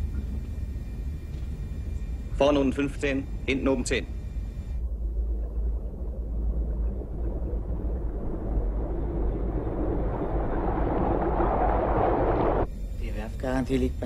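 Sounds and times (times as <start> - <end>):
deep steady rumble: 0.0 - 14.0
rushing noise: 4.9 - 12.7.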